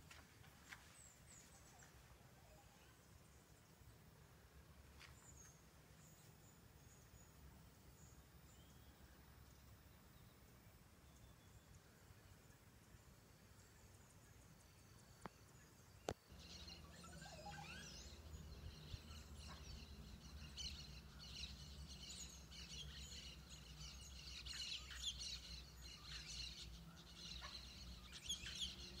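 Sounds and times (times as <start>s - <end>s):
birds chirping and calling: 16.3s - 29.0s.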